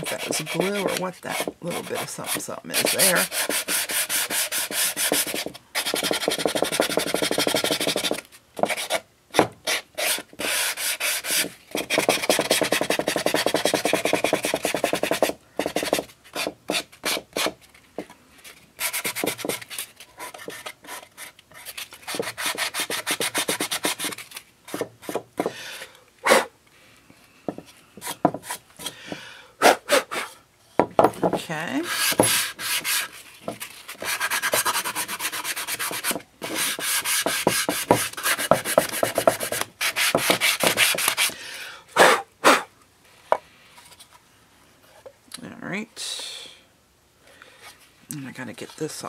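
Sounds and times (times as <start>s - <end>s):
sanding block scraping wood: 0.0s - 9.0s, 9.6s - 17.5s, 22.1s - 25.2s, 31.8s - 33.2s, 33.9s - 41.3s.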